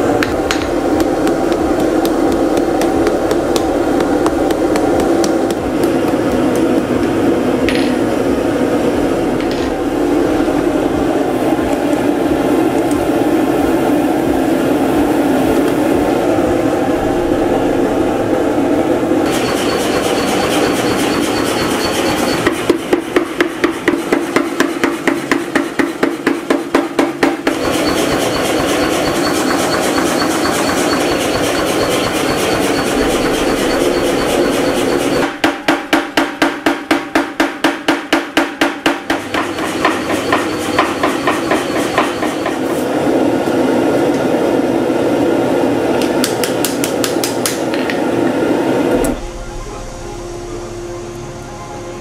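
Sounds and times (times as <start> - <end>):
power hammer strikes: 0.0 - 8.2, 19.2 - 42.9
forge fire roaring: 0.0 - 19.3.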